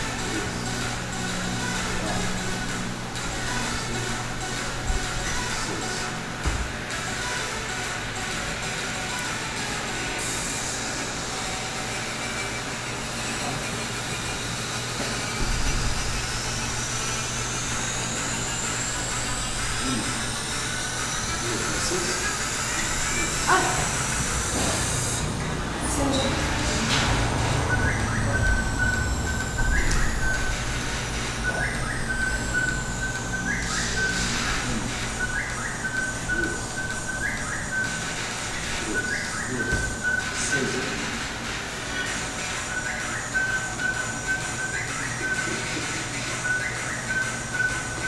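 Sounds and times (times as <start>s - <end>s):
steady background noise: 0.0s - 48.0s
high rising whistle note: 26.1s - 41.0s.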